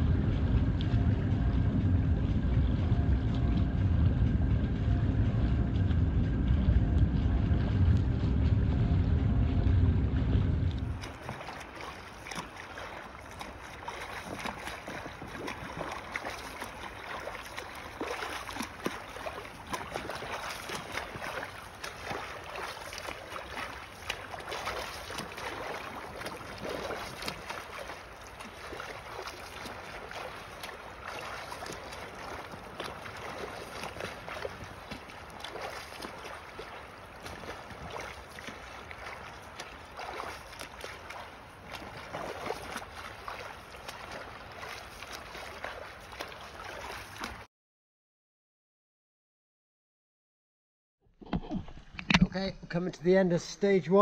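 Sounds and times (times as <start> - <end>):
sea water splashing: 7.5 - 47.5.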